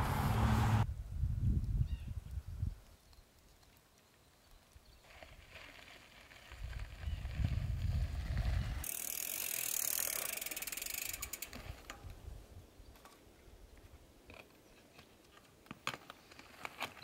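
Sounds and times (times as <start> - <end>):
bike tyres rumbling on dirt: 5.0 - 12.1
rear hub ratcheting buzz: 8.8 - 11.6.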